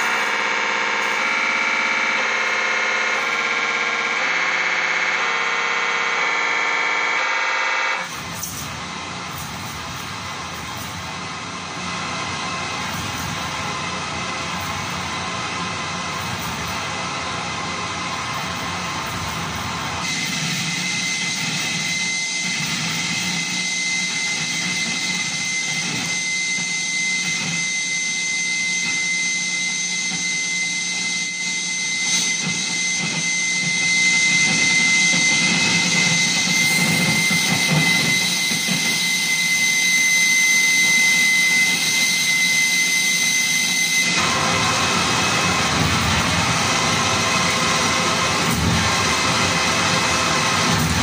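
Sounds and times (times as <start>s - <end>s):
thin high whistle: 0.0s - 4.3s, 18.2s - 51.0s
harsh electronic static noise: 0.0s - 27.6s.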